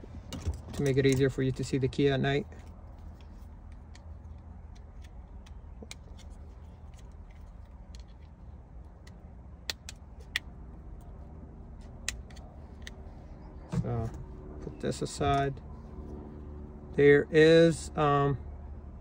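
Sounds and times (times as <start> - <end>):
steady low hum: 0.0 - 19.0
screwdriver clicks on plastic parts: 9.0 - 10.4.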